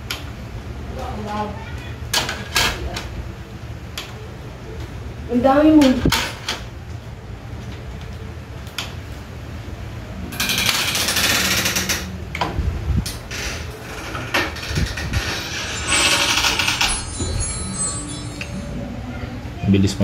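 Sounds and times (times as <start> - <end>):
mechanism clicks: 7.6 - 9.2, 10.3 - 17.5.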